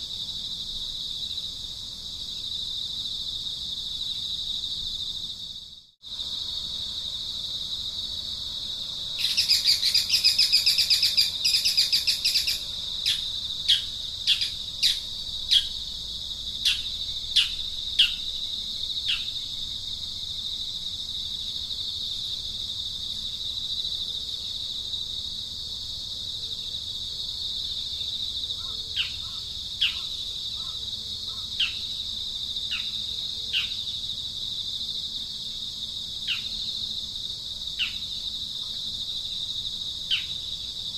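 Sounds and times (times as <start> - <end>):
high-pitched insect drone: 2.2 - 25.5
bird calling: 9.2 - 15.8, 28.6 - 31.9.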